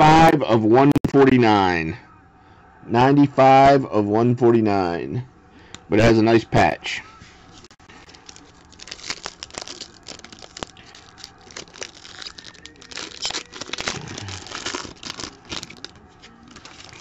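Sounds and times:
foil wrapper tearing and crinkling: 7.9s - 17.0s.

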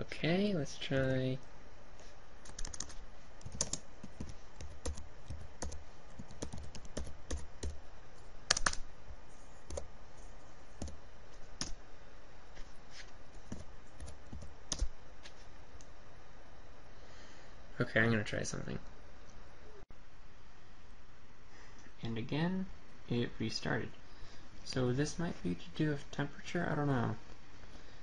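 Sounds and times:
laptop keyboard typing: 2.4s - 7.8s, 8.4s - 8.9s, 9.6s - 9.9s, 10.8s - 11.0s, 13.4s - 14.9s.

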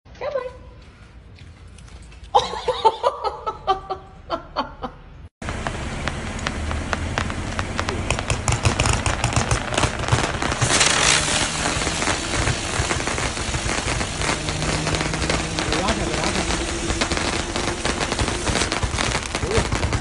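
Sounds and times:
fireworks crackling pops: 5.4s - 20.0s
fireworks hiss: 5.4s - 20.0s.

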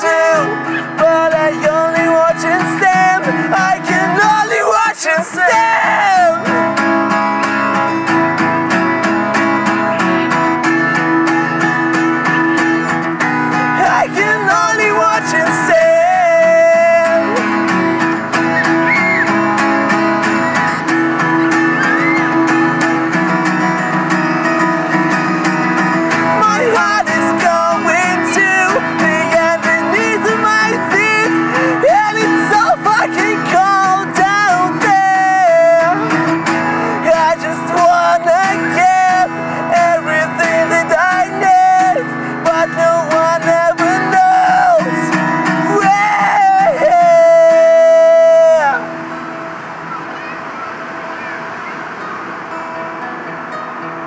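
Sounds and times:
person singing: 0.0s - 6.9s, 9.4s - 19.0s, 26.1s - 48.9s
acoustic guitar strumming chords: 0.0s - 54.0s.

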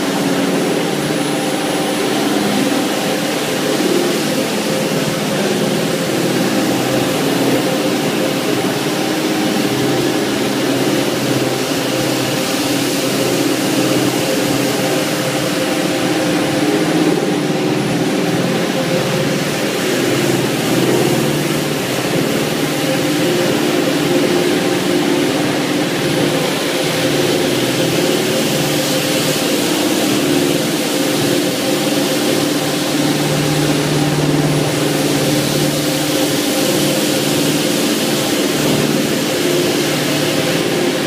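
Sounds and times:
carpet washing machine humming: 0.0s - 41.0s
brushes hissing on wet carpet: 18.1s - 41.0s.

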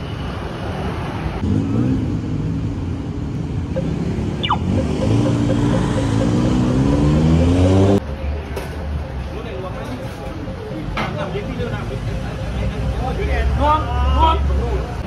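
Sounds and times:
vehicle engines running: 1.3s - 15.0s
vehicle accelerating: 1.4s - 8.2s
short falling whistle: 4.4s - 4.7s.

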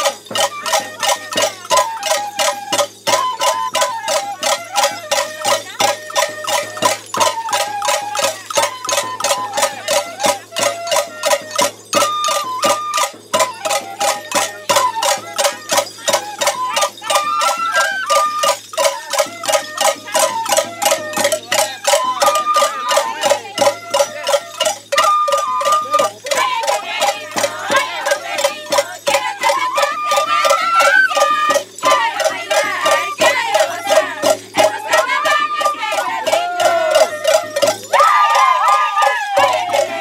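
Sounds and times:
wooden flutes playing melody: 0.0s - 40.0s
steady drum beat: 25.8s - 40.0s.

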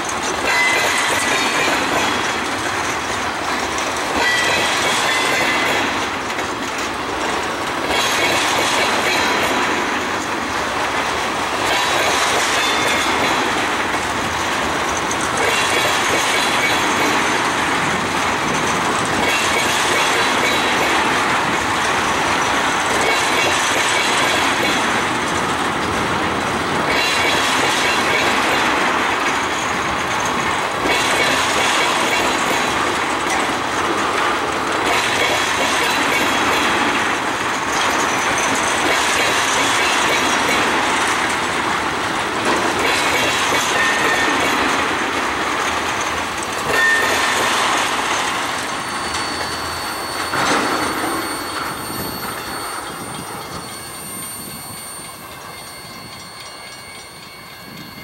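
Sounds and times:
freight train rolling past: 0.0s - 58.0s
wheels clattering over rail joints: 0.0s - 58.0s
faint high wheel squeal: 46.7s - 47.4s, 48.6s - 58.0s.

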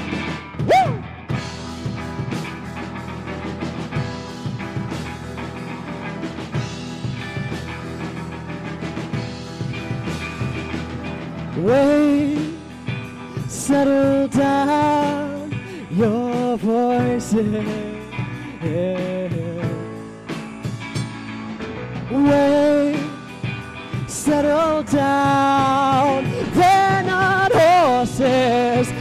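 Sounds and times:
guitar accompaniment: 0.0s - 29.0s
person singing: 0.6s - 1.1s, 11.6s - 20.0s, 22.1s - 29.0s.

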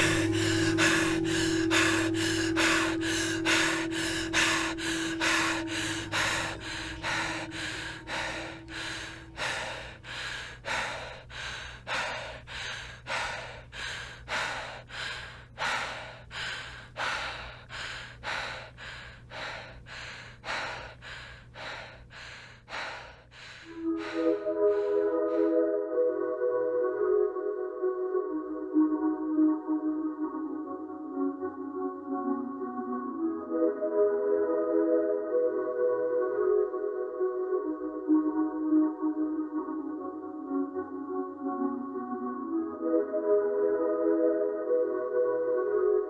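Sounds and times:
held tone: 0.0s - 9.4s
person breathing hard: 0.0s - 25.8s.

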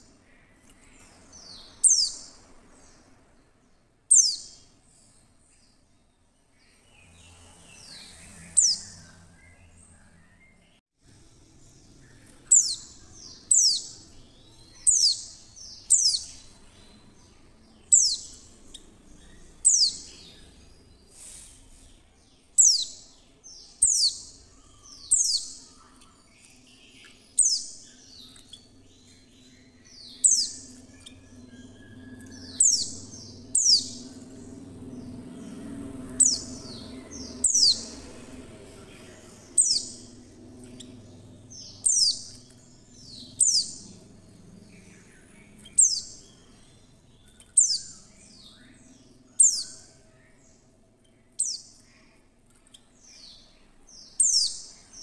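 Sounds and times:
faint low hum: 0.0s - 55.0s
high downward bird chirps: 4.1s - 4.7s, 12.0s - 21.6s, 26.7s - 46.6s.

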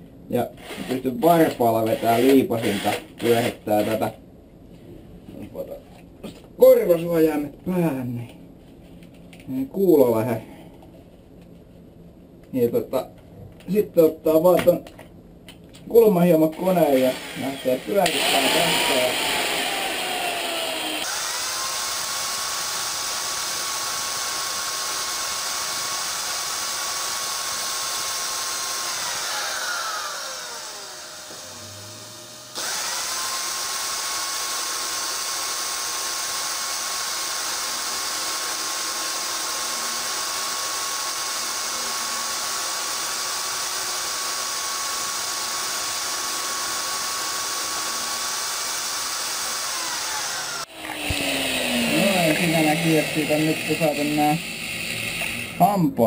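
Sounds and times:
angle grinder motor whine: 17.0s - 55.6s.

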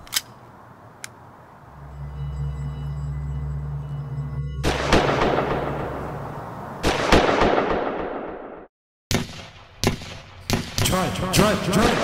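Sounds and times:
gunshots with echoing tail: 4.6s - 6.2s, 6.8s - 12.0s.

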